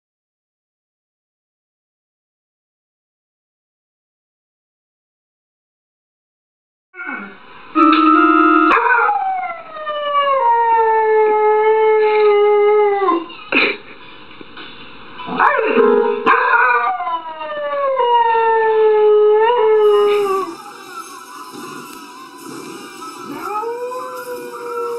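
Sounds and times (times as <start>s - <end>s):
electronic keyboard notes: 7.8s - 8.9s, 15.8s - 16.4s
dog howling: 8.7s - 13.3s, 16.3s - 24.9s.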